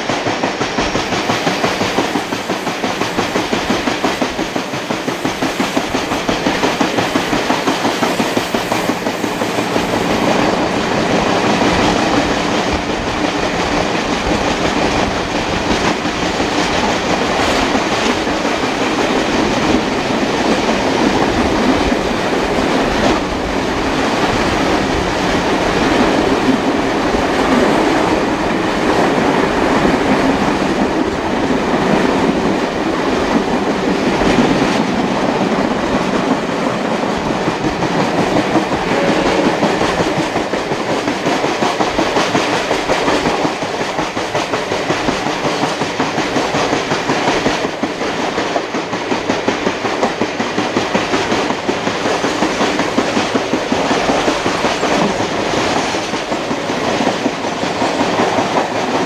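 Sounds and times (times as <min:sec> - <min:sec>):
train wheel and rail noise: 0:00.0 - 0:59.0
wheels clicking over rail joints: 0:00.0 - 0:59.0.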